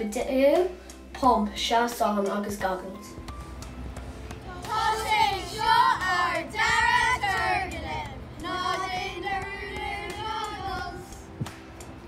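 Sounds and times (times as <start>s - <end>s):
children singing: 4.4s - 11.2s.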